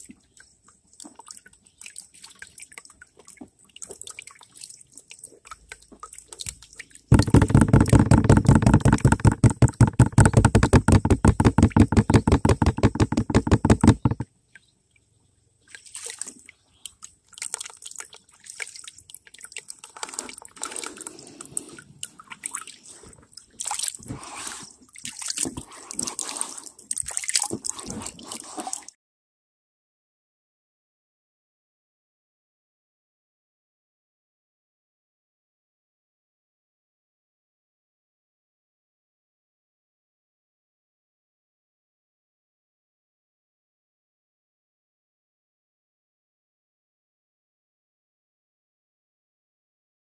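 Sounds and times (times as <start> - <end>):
water sloshing in a pan: 15.6 - 29.0.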